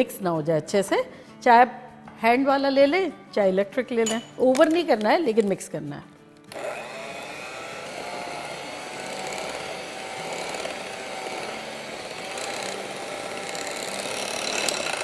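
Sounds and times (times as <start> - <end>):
electric hand mixer running: 6.5 - 15.0.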